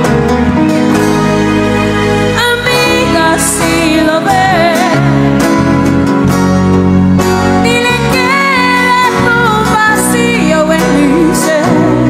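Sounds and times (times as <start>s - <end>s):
acoustic band playing: 0.0s - 12.0s
person singing: 2.4s - 5.4s, 7.6s - 12.0s.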